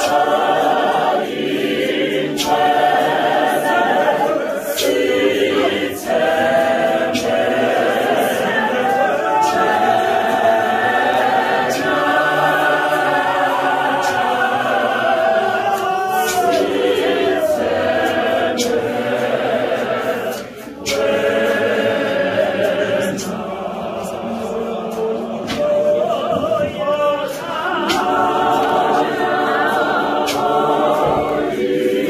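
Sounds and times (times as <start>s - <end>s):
congregation singing unaccompanied: 0.0s - 32.0s.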